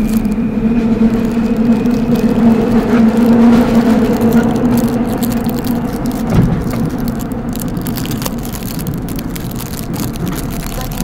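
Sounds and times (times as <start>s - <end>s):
train bump: 0.0s - 8.4s
low hum: 0.0s - 11.0s
subway train rumbling and rattling: 0.0s - 11.0s.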